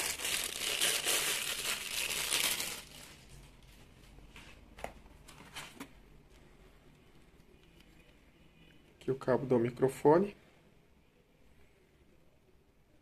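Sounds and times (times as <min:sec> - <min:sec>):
plastic bag crinkling: 0:00.0 - 0:03.4.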